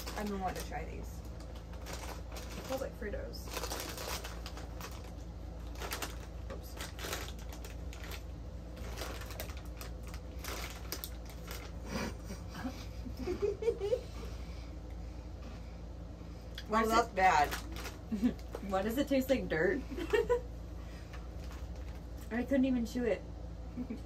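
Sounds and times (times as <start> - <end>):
corn chips crunching: 0.0 - 12.0, 17.3 - 18.7.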